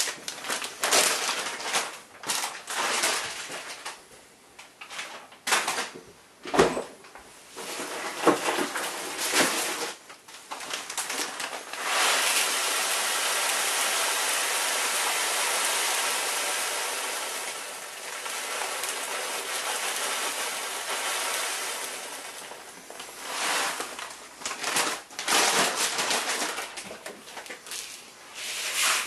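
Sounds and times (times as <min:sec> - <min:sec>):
plastic bag rustling: 0:00.0 - 0:04.0, 0:07.6 - 0:12.6, 0:16.9 - 0:29.0
grain pouring into bowl: 0:11.7 - 0:24.0.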